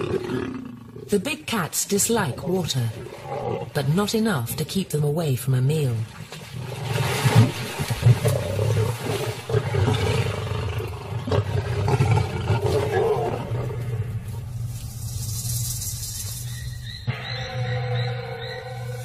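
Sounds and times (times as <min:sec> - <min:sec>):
lions growling and snarling: 0:00.0 - 0:01.2, 0:02.1 - 0:03.8, 0:06.4 - 0:14.5
water splashing: 0:02.0 - 0:16.6.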